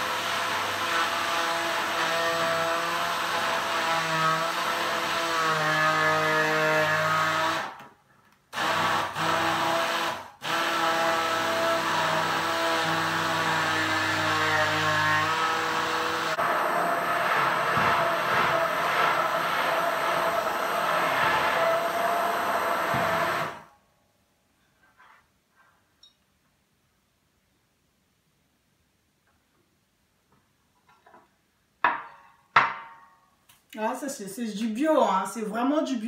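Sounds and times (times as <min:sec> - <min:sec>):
stick blender running: 0:00.0 - 0:07.8, 0:08.5 - 0:23.7.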